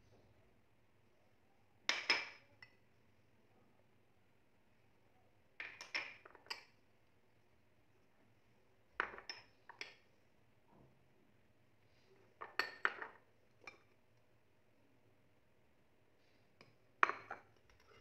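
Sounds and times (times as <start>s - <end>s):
ceramic bowls clinking on countertop: 1.9s - 2.8s, 5.6s - 6.7s, 9.0s - 10.0s, 12.4s - 13.9s, 16.6s - 18.0s.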